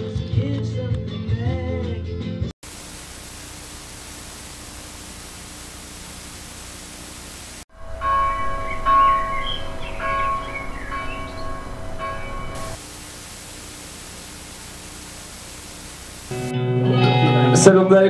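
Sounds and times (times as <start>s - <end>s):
music: 0.0s - 2.5s, 16.3s - 18.0s
television static hiss: 2.6s - 7.6s, 11.5s - 16.5s
bell-like musical tones: 7.7s - 12.8s
high gliding notes: 7.7s - 12.8s.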